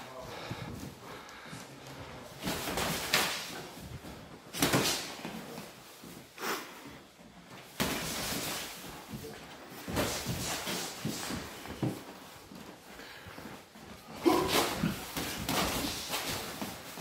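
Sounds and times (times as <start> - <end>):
feet shuffling on canvas: 5.4 - 17.0.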